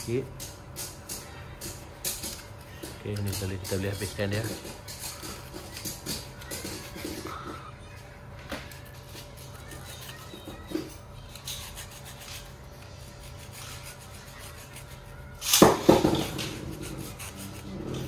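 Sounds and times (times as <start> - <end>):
knife blade sawing through foam: 16.6 - 18.0.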